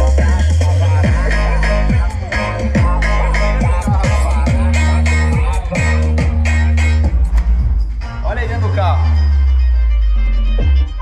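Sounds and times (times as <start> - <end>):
deep kick drum: 0.0 - 8.2, 10.6 - 11.0
bass-heavy music on car audio: 0.0 - 11.0.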